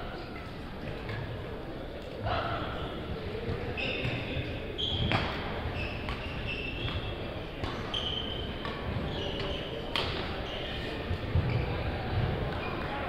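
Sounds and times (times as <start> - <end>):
busy hall background noise: 0.0 - 13.0
shoes squeaking on court floor: 2.6 - 13.0
racket hitting shuttlecock: 9.4 - 10.4.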